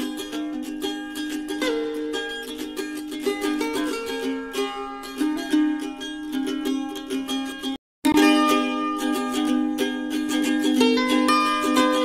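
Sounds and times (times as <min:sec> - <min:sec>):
plucked string melody: 0:00.0 - 0:12.0.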